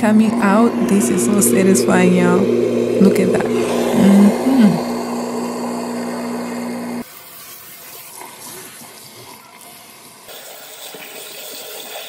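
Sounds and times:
garbage disposal humming: 0.0s - 7.1s
tap water pouring into drain: 10.3s - 12.0s.

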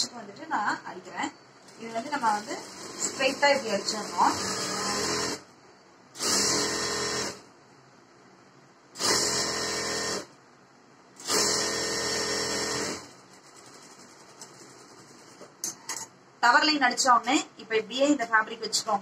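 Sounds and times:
sewing machine stitching: 1.7s - 5.4s, 6.2s - 7.5s, 9.0s - 10.3s, 11.2s - 15.5s.

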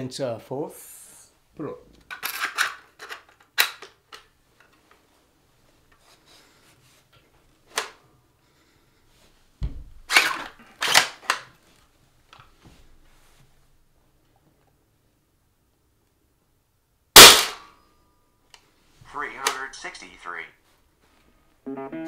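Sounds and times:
plastic clicks and clacks: 2.0s - 4.8s.

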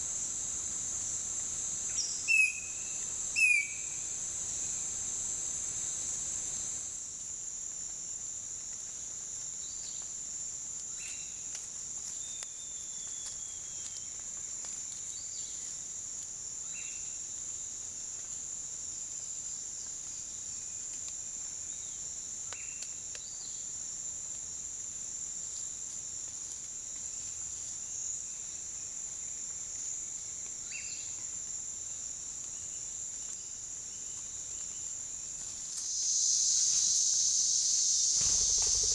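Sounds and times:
insects droning: 0.0s - 38.9s
faint chirping calls: 1.9s - 4.0s.

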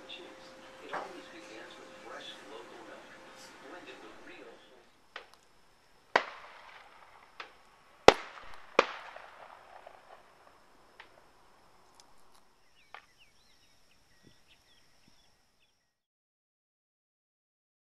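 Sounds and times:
sharp echoing bangs: 0.0s - 11.8s
faint high steady whine: 0.0s - 16.0s.

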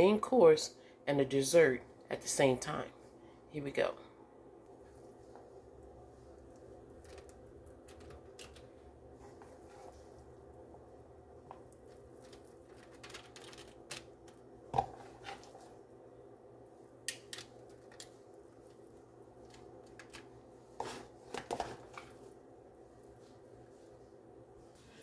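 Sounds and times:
faint steady hum: 0.0s - 25.0s
aluminium foil rustling and crinkling: 6.8s - 10.2s, 11.6s - 15.8s, 17.1s - 22.3s.

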